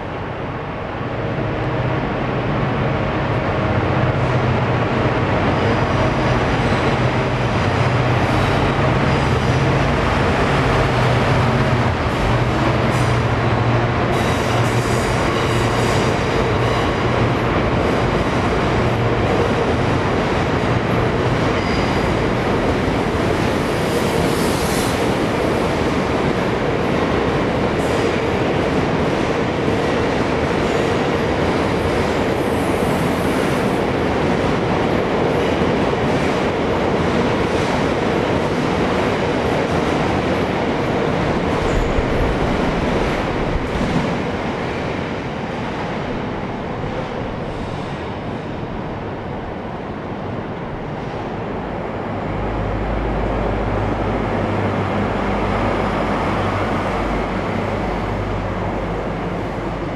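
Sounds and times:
locomotive engine drone: 0:00.0 - 0:27.4, 0:39.1 - 0:59.9
high wheel squeal: 0:21.5 - 0:22.1.

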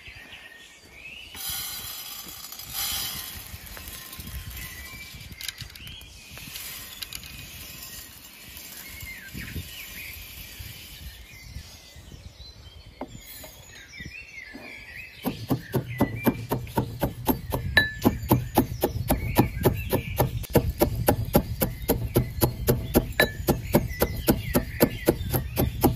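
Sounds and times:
birds chirping: 0:00.0 - 0:25.9
grains pattering into a bowl: 0:01.4 - 0:05.7
pestle pounding in metal mortar: 0:15.2 - 0:25.9.

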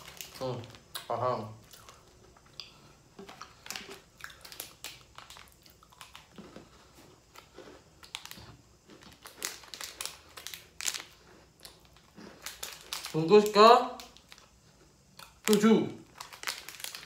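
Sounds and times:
plastic wrappers crinkling: 0:00.0 - 0:01.1, 0:03.2 - 0:06.7, 0:08.0 - 0:14.6, 0:15.2 - 0:17.0
crunchy chewing of biscuits: 0:00.0 - 0:17.0.

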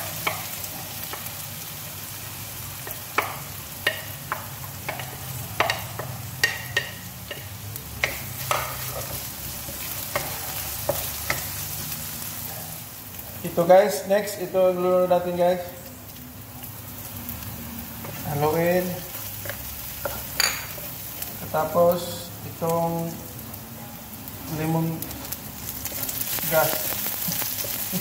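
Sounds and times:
onion sizzling in hot oil: 0:00.0 - 0:28.0
utensils knocking against pan: 0:02.8 - 0:11.5, 0:19.5 - 0:20.8.

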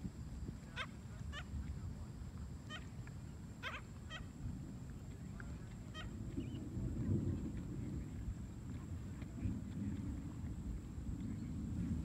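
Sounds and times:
gulls calling: 0:03.6 - 0:04.3, 0:05.9 - 0:06.6
low rumble: 0:04.5 - 0:12.0.

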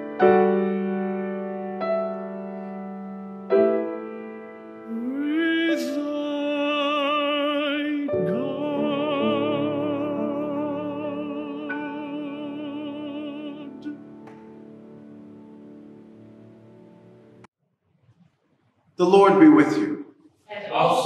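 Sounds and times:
piano chords: 0:00.0 - 0:17.5
solo voice singing with vibrato: 0:04.9 - 0:14.2.

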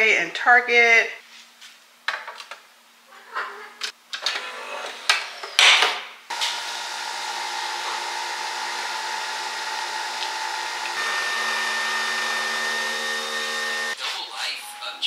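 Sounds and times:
coffee machine whirring: 0:06.3 - 0:14.0.

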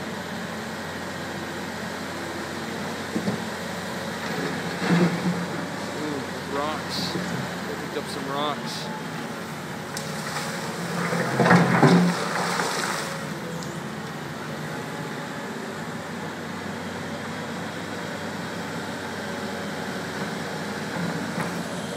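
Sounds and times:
excavator diesel engine running: 0:00.0 - 0:21.9
rushing floodwater: 0:10.0 - 0:13.5.

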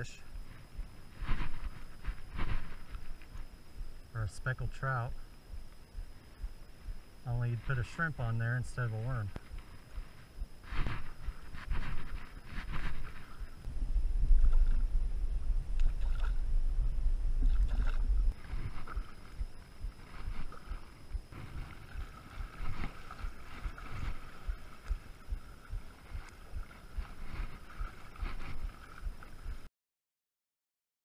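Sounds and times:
water lapping at shore: 0:00.0 - 0:29.7
wind buffeting microphone: 0:09.1 - 0:29.7.

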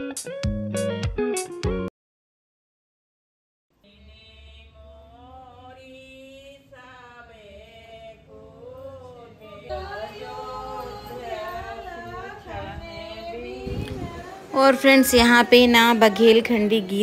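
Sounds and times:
women singing folk song: 0:03.8 - 0:17.0.

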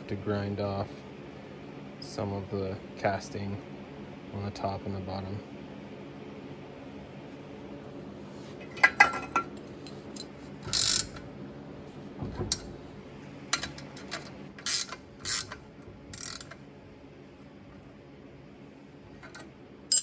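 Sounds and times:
ratchet wrench clicking: 0:10.7 - 0:11.2, 0:14.6 - 0:16.6.

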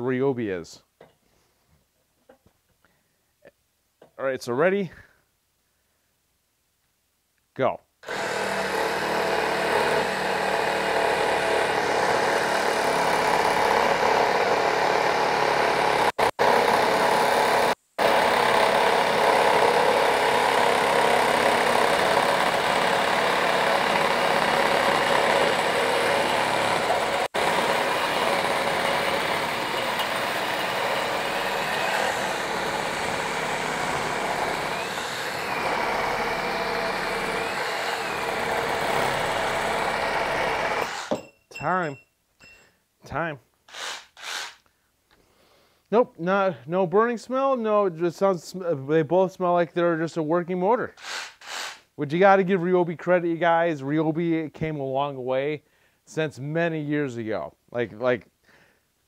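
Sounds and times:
reciprocating saw cutting metal pipe: 0:08.0 - 0:41.3, 0:43.7 - 0:44.6, 0:51.0 - 0:51.8.

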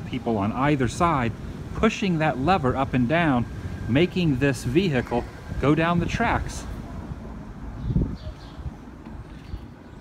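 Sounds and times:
wind rumble on microphone: 0:05.0 - 0:10.0.

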